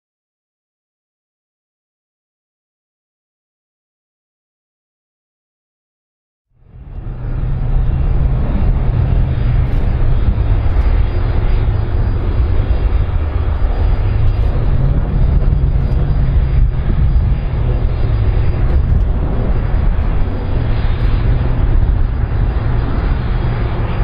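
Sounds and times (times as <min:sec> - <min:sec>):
jet engines rumbling: 0:06.6 - 0:24.0.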